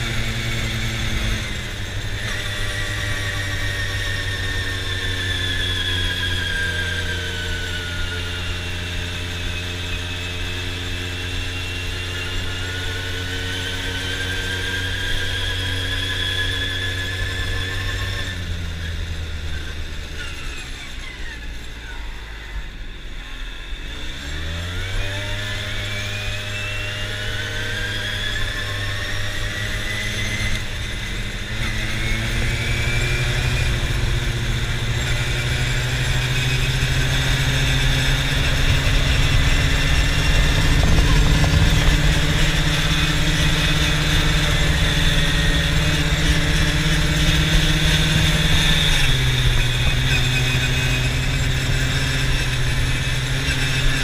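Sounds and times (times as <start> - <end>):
quad bike engine running: 0.0 - 54.0
high whine: 25.7 - 54.0.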